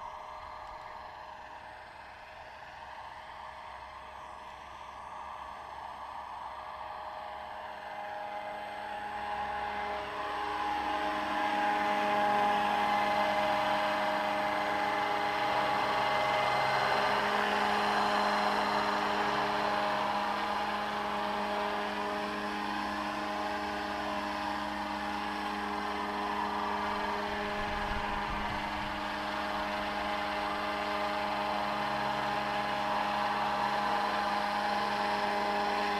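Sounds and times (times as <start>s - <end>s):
model helicopter whirring: 0.0s - 35.9s.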